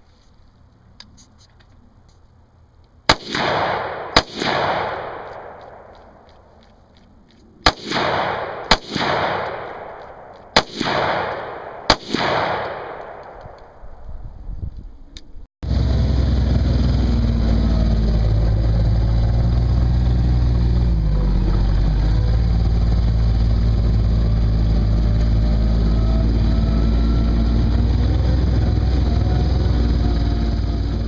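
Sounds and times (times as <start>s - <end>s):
rifle shots with echo: 3.1s - 6.7s, 7.6s - 14.0s.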